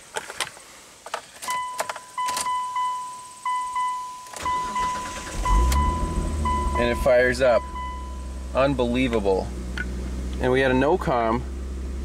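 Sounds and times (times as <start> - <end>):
car engine cranking and starting: 1.3 - 12.0
steady electronic beep: 1.5 - 8.7.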